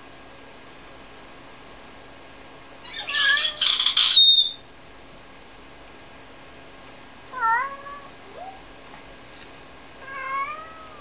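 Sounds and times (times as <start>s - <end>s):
cat meowing: 2.8s - 3.6s, 7.3s - 8.6s, 10.0s - 11.0s
cat crying loudly: 2.8s - 4.3s, 7.4s - 8.6s, 10.0s - 11.0s.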